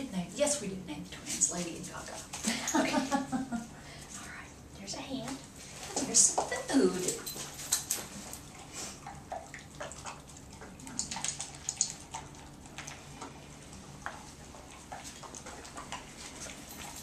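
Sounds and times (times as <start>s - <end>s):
dog chewing and lapping: 5.7s - 17.0s.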